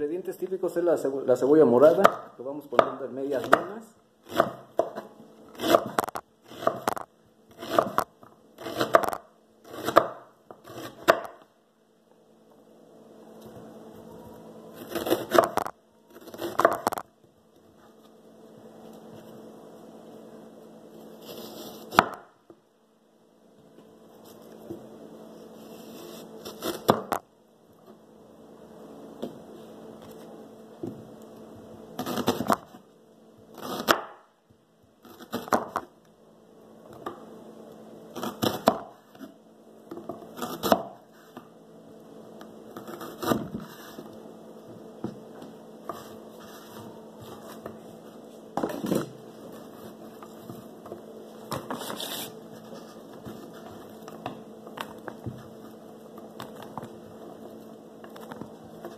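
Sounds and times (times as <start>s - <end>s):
steady low hum: 0.0s - 58.9s
knife chopping on wooden board: 2.0s - 7.0s, 7.6s - 11.4s, 14.8s - 15.7s, 21.9s - 22.3s, 33.6s - 34.2s, 35.2s - 35.9s, 38.2s - 38.9s, 40.0s - 41.0s.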